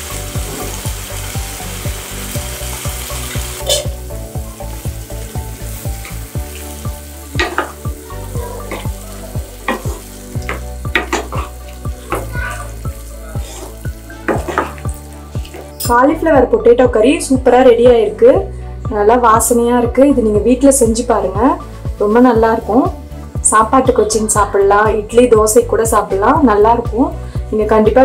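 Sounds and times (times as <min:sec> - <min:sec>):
curry sizzling in a pan: 0:00.0 - 0:15.9, 0:20.6 - 0:25.4
utensil scraping and tapping pan: 0:13.4 - 0:14.8.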